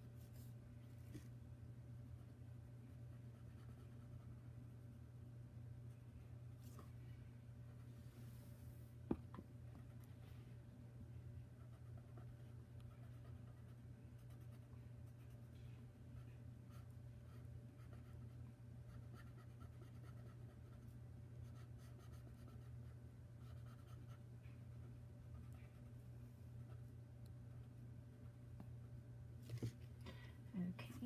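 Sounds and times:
steady low hum: 0.0 - 31.0
pen scratching on paper: 16.7 - 20.8.

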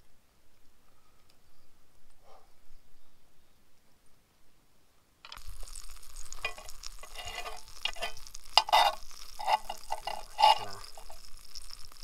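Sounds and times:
knife scraping cast iron pan: 6.3 - 11.3.

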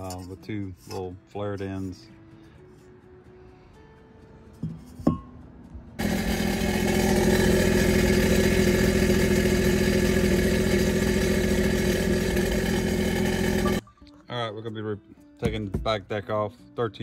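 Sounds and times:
watercraft engine idling: 6.0 - 13.8.

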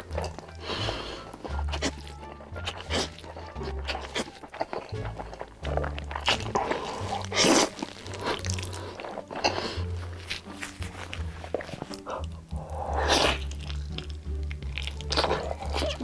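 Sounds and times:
background music with bass line: 0.0 - 16.0
man slurping noodles: 5.6 - 9.9, 11.9 - 13.5.

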